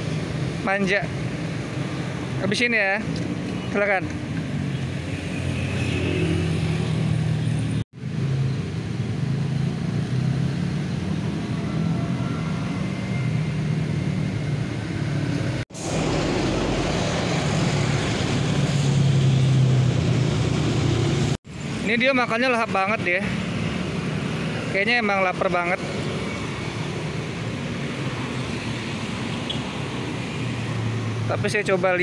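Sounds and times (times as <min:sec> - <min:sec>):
motor traffic hum: 0:00.0 - 0:32.0.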